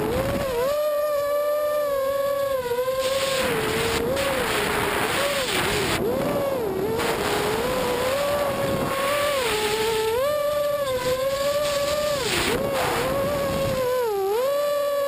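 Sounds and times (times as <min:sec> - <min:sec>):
quadcopter motor whine: 0:00.0 - 0:15.0
rush of prop wash and wind: 0:03.0 - 0:14.0.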